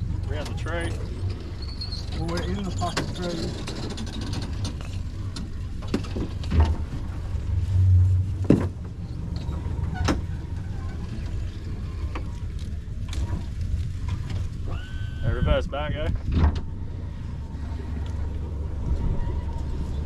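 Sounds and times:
outboard motor running: 16.6 - 20.0.

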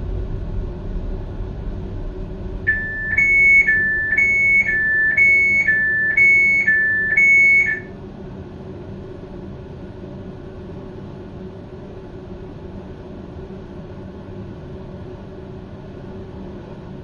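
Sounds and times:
train equipment humming: 0.0 - 7.9
two-tone electronic beep: 2.7 - 7.9.

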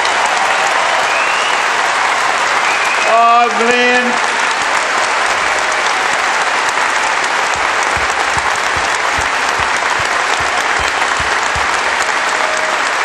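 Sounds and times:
large audience applauding: 0.0 - 13.0
low thuds: 7.6 - 12.0.

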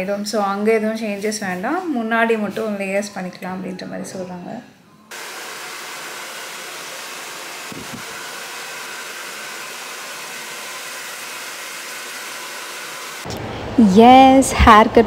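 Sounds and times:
hair dryer blowing: 5.1 - 13.8.

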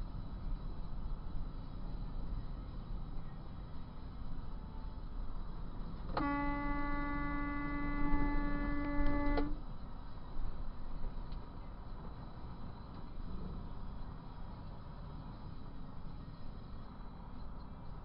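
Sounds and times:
truck rumbling: 0.0 - 18.0
truck horn blast: 6.1 - 9.6.

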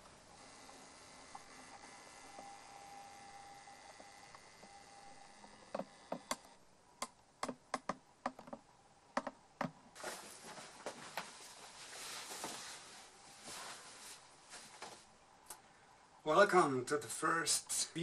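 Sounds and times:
sharp clicks and taps: 5.7 - 8.6, 9.2 - 9.8
person sitting on fabric sofa: 9.9 - 15.6.

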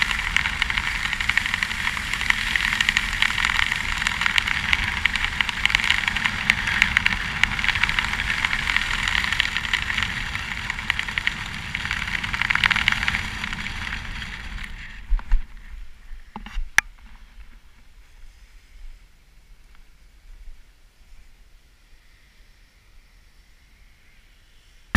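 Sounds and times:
wind buffeting microphone: 0.0 - 16.6.

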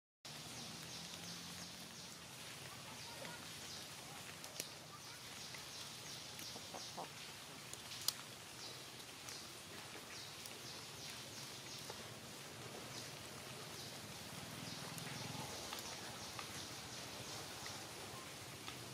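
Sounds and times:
soft steady hiss: 0.3 - 18.9.

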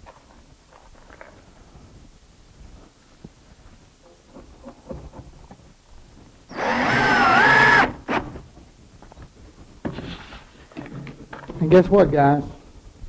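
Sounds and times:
cordless drill whining: 6.5 - 8.4.

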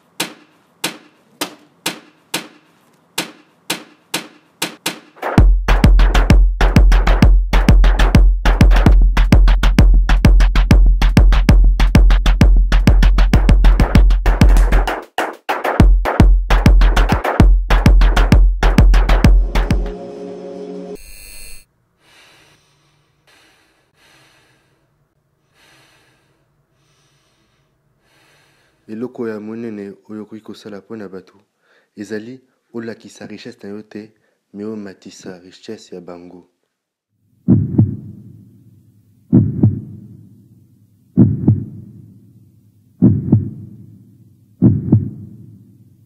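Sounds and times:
heavy heartbeat thumps: 5.2 - 14.9, 15.8 - 19.9, 37.5 - 38.2, 39.3 - 40.1, 41.2 - 42.0, 43.0 - 43.8, 44.6 - 45.5
soft slow breathing: 22.0 - 28.9.

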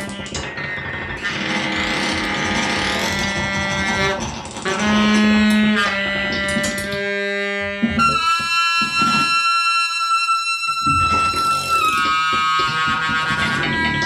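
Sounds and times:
scattered clicks: 0.0 - 7.0
held tones of improvised music: 0.0 - 14.0.

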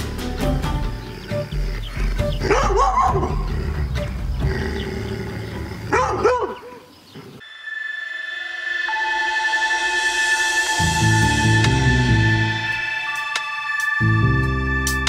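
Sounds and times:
background music: 0.0 - 6.6, 8.6 - 15.0
dog barking: 2.4 - 3.4, 5.9 - 6.9.

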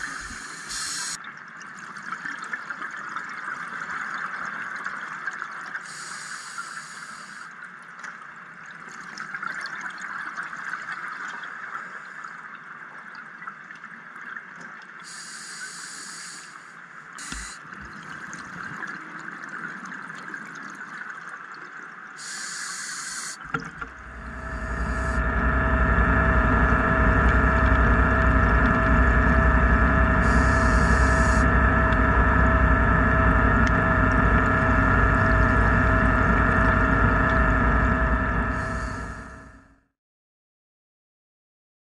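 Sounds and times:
loud mechanical drone: 0.0 - 1.2, 23.4 - 39.8
short high hissing bursts: 0.0 - 1.2, 15.1 - 17.6, 22.2 - 23.4
underwater hiss: 0.0 - 1.2, 5.8 - 7.5, 15.0 - 17.7, 22.2 - 23.4.

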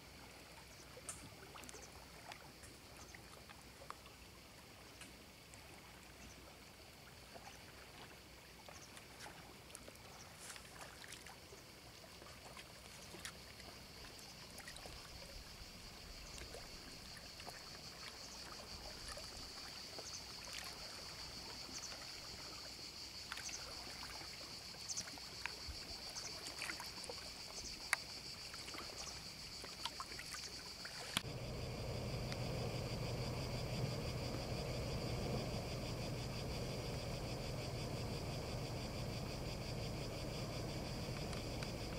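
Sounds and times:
water splashing and lapping: 0.3 - 41.9
cicadas buzzing: 9.9 - 41.9.

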